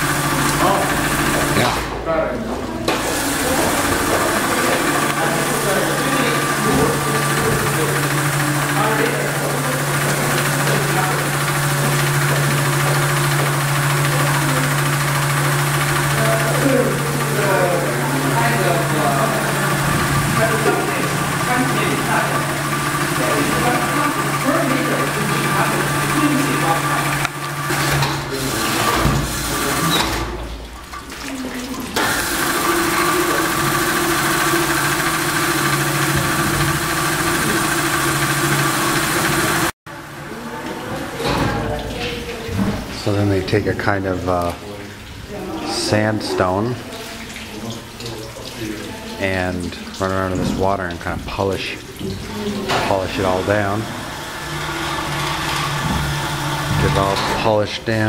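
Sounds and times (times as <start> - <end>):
polishing lathe humming: 0.0 - 1.9, 2.9 - 30.0, 32.0 - 39.8, 51.4 - 58.0.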